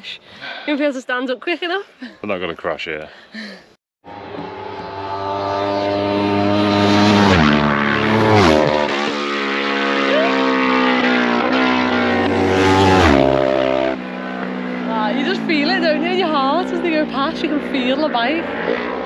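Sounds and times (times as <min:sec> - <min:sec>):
motorcycles passing at full speed: 0:04.1 - 0:19.0.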